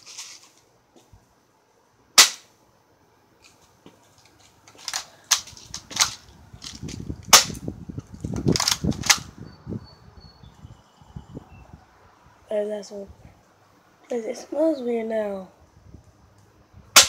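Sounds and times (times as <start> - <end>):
air pistol firing crack: 2.2 - 2.6, 7.3 - 7.7
pistol handling clicks and rattles: 4.2 - 7.0, 8.2 - 9.3.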